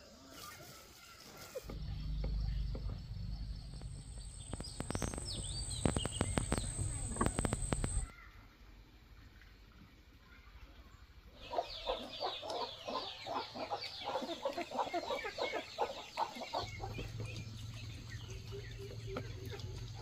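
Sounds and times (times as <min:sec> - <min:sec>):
chickens clucking: 0:03.8 - 0:08.1, 0:11.4 - 0:20.0.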